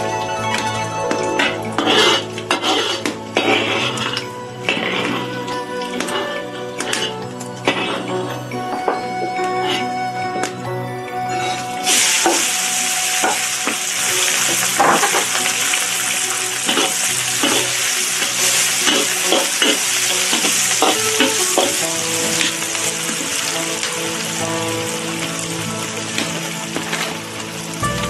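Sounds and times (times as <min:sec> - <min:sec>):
vegetables sizzling in a wok: 0:11.8 - 0:28.0.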